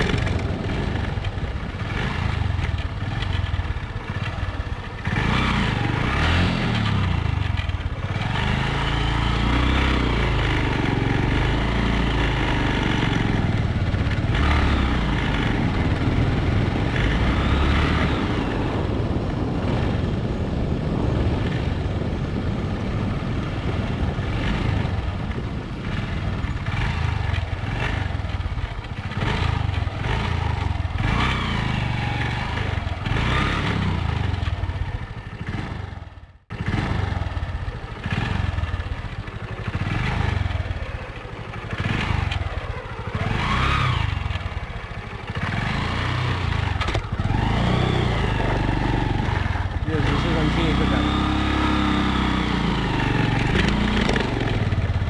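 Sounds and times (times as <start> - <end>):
motorcycle engine running: 0.0 - 55.0
wind on microphone: 12.8 - 34.8.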